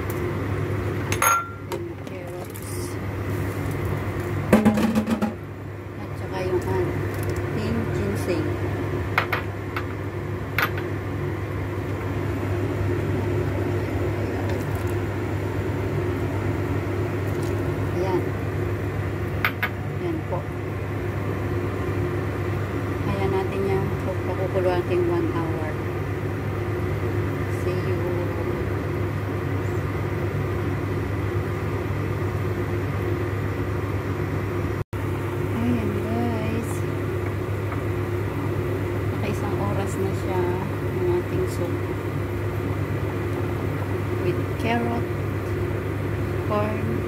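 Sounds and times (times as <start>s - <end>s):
low mechanical hum: 0.0s - 47.0s.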